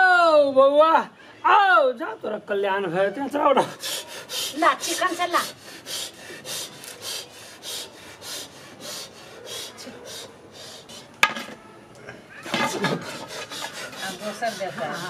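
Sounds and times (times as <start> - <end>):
rhythmic rasping strokes: 12.4 - 15.0.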